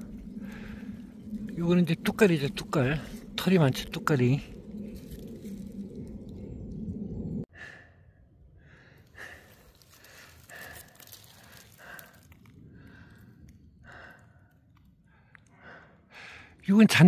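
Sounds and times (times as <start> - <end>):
person breathing: 0.0 - 1.5, 7.5 - 16.6.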